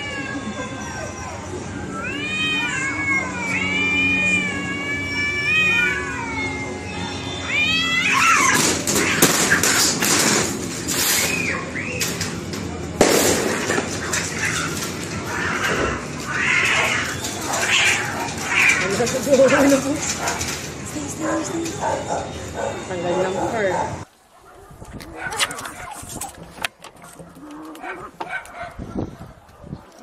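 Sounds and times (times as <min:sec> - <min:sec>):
cats yowling and screeching: 0:00.0 - 0:12.2, 0:13.5 - 0:24.0, 0:24.7 - 0:26.5.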